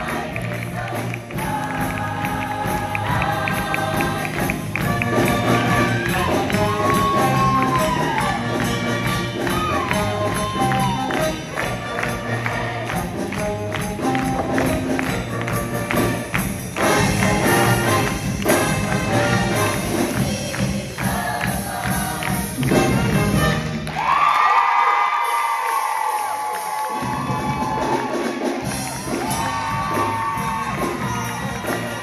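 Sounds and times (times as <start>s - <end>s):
show choir singing: 0.0s - 13.8s, 16.8s - 23.3s
driving beat with bright percussion: 0.0s - 23.8s, 25.2s - 32.0s.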